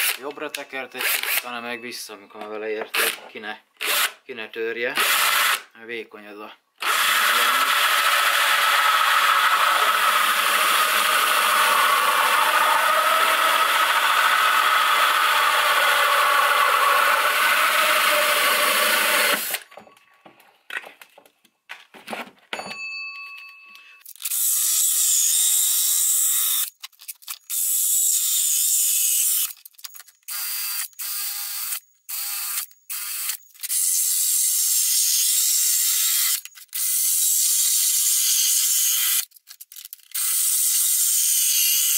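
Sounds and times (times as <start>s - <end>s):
cordless drill cutting plastic: 1.0s - 1.5s, 2.9s - 3.2s, 3.8s - 4.2s, 5.0s - 5.7s, 6.8s - 19.8s, 24.1s - 39.3s, 40.0s - 41.9s.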